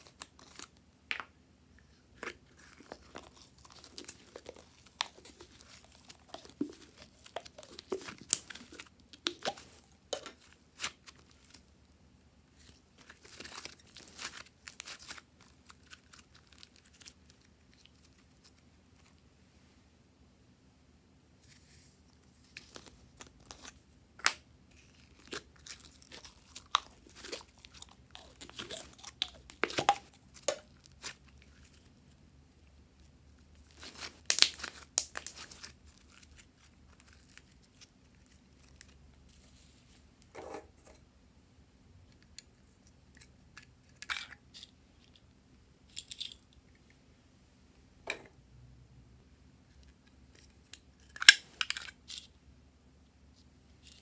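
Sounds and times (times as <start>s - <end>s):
slime squelching and crackling: 2.1s - 11.7s, 24.7s - 31.9s, 33.4s - 39.6s.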